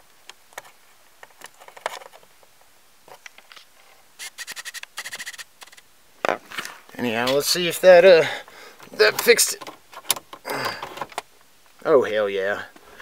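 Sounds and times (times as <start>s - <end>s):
rapid rattling clicks: 4.2s - 5.8s.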